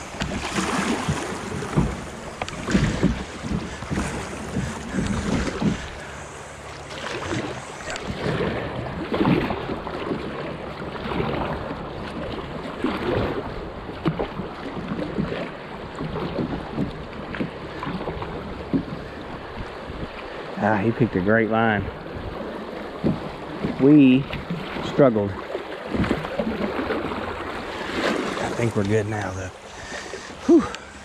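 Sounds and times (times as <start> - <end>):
wind buffeting microphone: 0.0 - 6.2
paddle strokes in water: 0.0 - 31.0
water rushing and splashing: 0.0 - 31.0
waves against kayak hull: 0.0 - 31.0.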